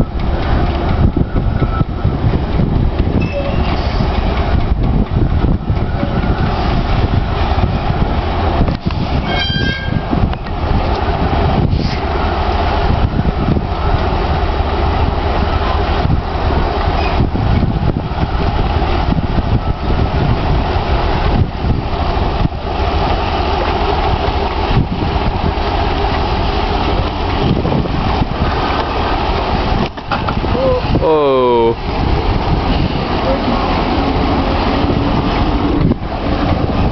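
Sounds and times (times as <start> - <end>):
heavy diesel engine running: 10.0 - 36.9.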